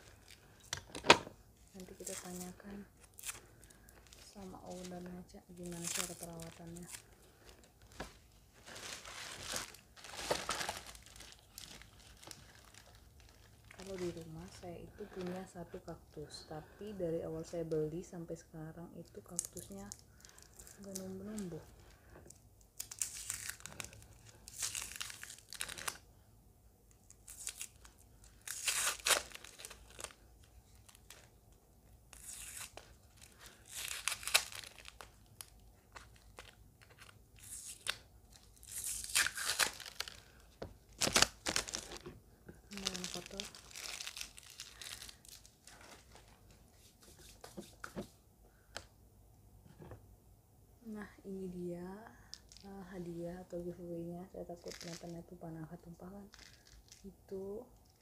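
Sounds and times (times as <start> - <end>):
plastic wrap crinkling and tearing: 0.0 - 15.9, 19.0 - 26.1, 26.9 - 31.4, 32.1 - 47.5, 52.3 - 52.9, 54.4 - 57.1
plastic bag rustling: 0.0 - 16.4, 38.6 - 48.1
crumpled paper crackling: 0.0 - 16.8, 19.2 - 26.0, 27.0 - 31.3, 32.1 - 48.1, 54.5 - 55.4, 56.2 - 57.1.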